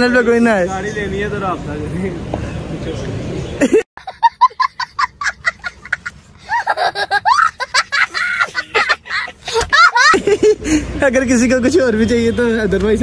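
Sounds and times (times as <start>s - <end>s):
child laughing: 3.6s - 10.7s.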